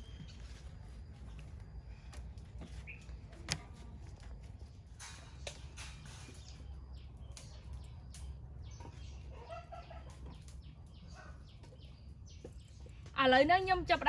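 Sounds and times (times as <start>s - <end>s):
chickens clucking: 8.6s - 12.5s.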